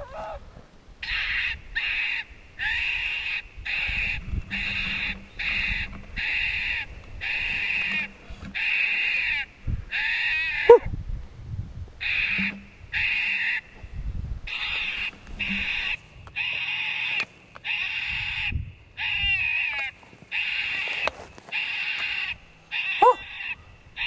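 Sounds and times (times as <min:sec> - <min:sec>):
electronic prey distress call: 0:21.6 - 0:23.6.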